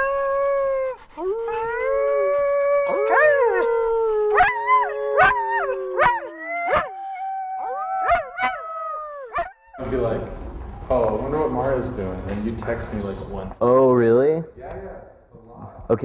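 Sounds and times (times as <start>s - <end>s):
dog howling: 0.0s - 9.8s
dog yelping: 2.8s - 9.8s.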